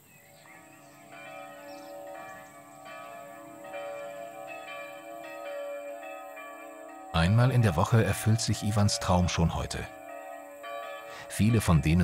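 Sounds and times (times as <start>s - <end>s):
church bell ringing: 0.0s - 12.0s.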